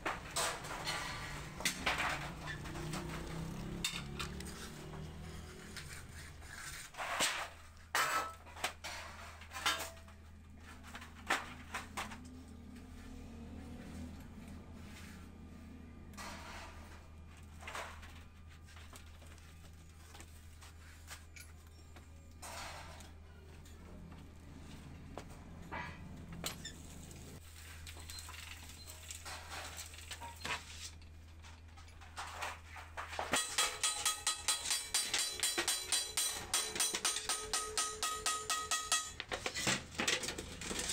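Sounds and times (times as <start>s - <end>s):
sheet metal clicks and scrapes: 31.4s - 40.9s
steel panels clanking: 31.9s - 40.9s.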